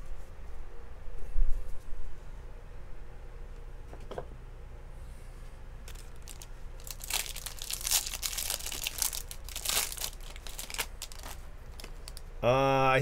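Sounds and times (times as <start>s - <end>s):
foil wrapper tearing and crinkling: 5.9s - 12.3s.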